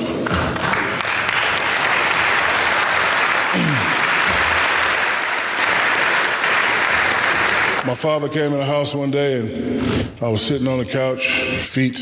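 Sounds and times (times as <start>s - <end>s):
audience applauding: 0.0s - 8.0s.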